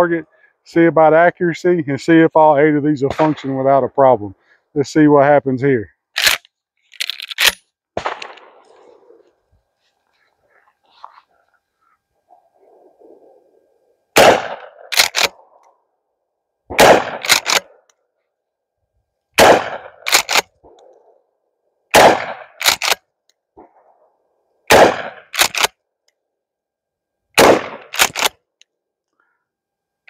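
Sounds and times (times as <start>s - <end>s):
shotgun shots: 3.1s - 3.6s, 7.4s - 8.9s, 14.2s - 15.4s, 16.7s - 17.7s, 19.4s - 20.8s, 21.9s - 23.0s, 24.7s - 25.7s, 27.4s - 28.3s.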